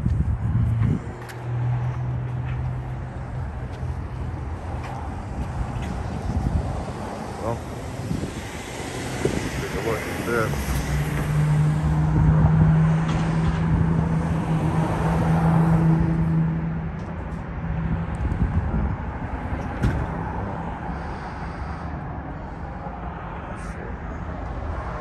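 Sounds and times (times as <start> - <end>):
traffic rumble: 0.0 - 25.0
vehicle engine humming: 0.0 - 25.0.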